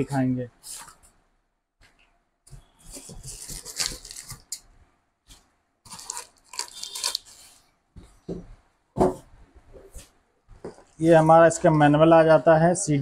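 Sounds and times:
packaging rustling and scraping: 0:02.8 - 0:04.7, 0:05.3 - 0:07.7.

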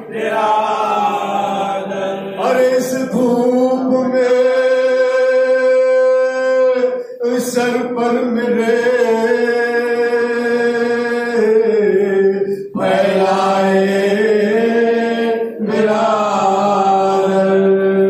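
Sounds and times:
men chanting in unison: 0:00.0 - 0:18.0.

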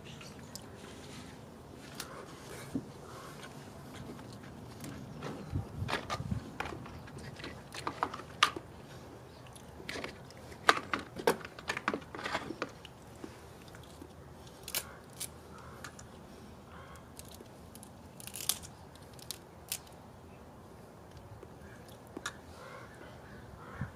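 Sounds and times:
crab shell cracking: 0:13.6 - 0:16.1, 0:16.9 - 0:20.0.

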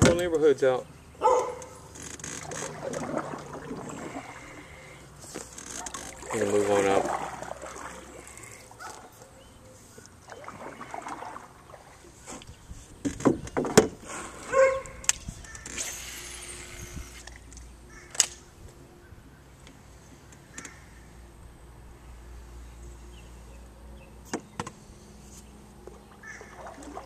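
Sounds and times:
dogs barking: 0:01.2 - 0:01.8, 0:08.8 - 0:09.4, 0:14.5 - 0:15.0.

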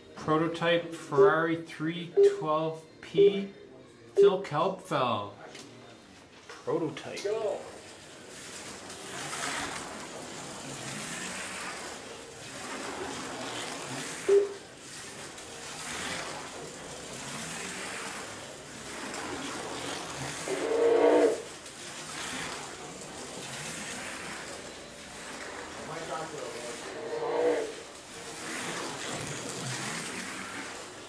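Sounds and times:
slot car motor whining: 0:07.8 - 0:31.0.

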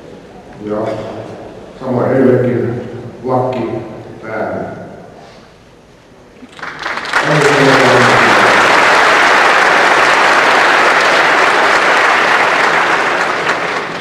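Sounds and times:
audience applause: 0:06.4 - 0:14.0.

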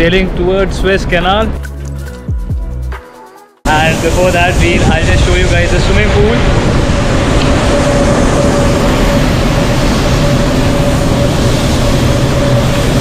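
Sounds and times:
ventilation fans rushing and humming: 0:03.7 - 0:13.0.

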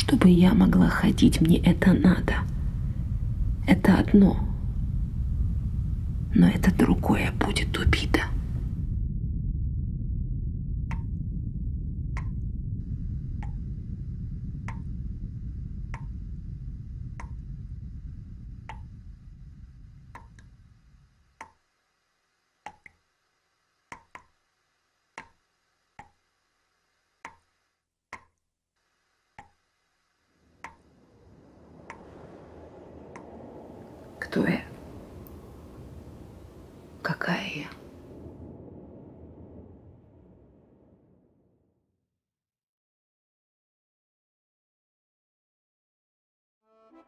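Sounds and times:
low rumble: 0:00.0 - 0:21.4, 0:30.4 - 0:41.9
water dripping from a tap: 0:13.4 - 0:13.6, 0:14.6 - 0:14.9, 0:15.9 - 0:16.1, 0:17.1 - 0:17.5.

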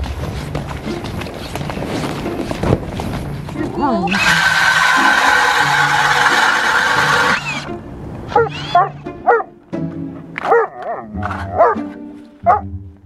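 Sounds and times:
background music: 0:00.0 - 0:13.0
drill grinding through ice: 0:04.1 - 0:07.7, 0:08.5 - 0:08.8
dog barking and whining: 0:08.3 - 0:09.5, 0:10.4 - 0:12.7.

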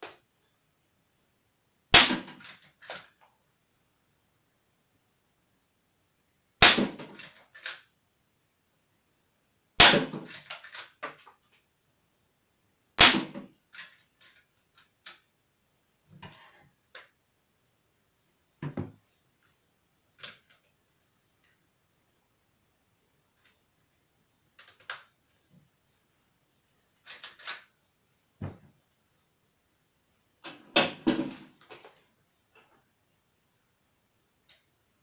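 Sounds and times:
air rifle shots: 0:01.9 - 0:02.5, 0:06.6 - 0:07.3, 0:09.8 - 0:10.4, 0:13.0 - 0:13.4
rattle of small clicks: 0:02.4 - 0:03.3, 0:07.0 - 0:07.9, 0:10.2 - 0:11.4, 0:13.7 - 0:15.3, 0:24.5 - 0:25.2, 0:27.0 - 0:27.8.

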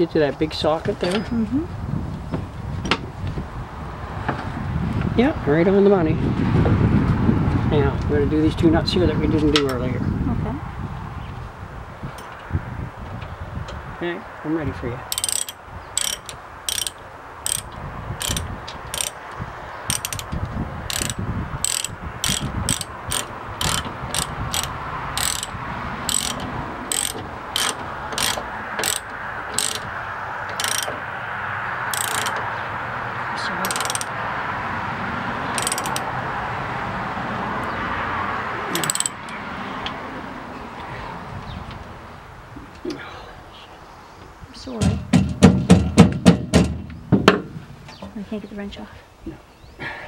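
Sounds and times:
socket ratchet wrench clicking: 0:15.1 - 0:19.2, 0:19.9 - 0:20.3, 0:20.9 - 0:29.8, 0:30.5 - 0:31.0, 0:31.9 - 0:32.4, 0:33.6 - 0:34.1, 0:35.5 - 0:36.1, 0:38.8 - 0:39.4.

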